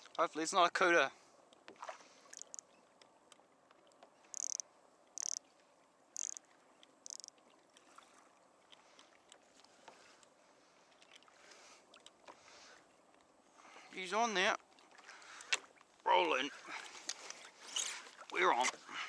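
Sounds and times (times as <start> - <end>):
fishing reel buzzing: 2.3 - 2.7, 4.3 - 5.4, 6.2 - 6.4, 7.0 - 7.3.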